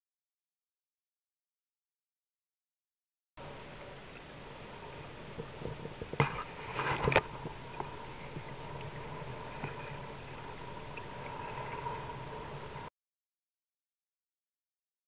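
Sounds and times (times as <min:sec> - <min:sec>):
water slapping against hull: 0:05.3 - 0:12.8.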